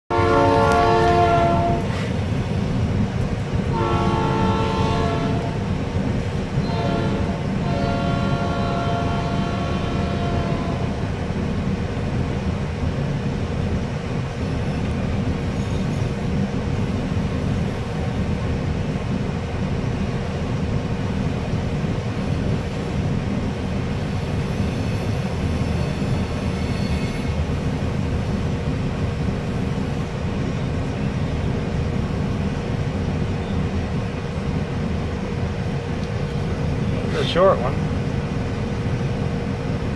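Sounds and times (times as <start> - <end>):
locomotive air horn: 0.1 - 2.1, 3.7 - 5.6, 6.6 - 11.0
train rumbling on rails: 0.1 - 39.9.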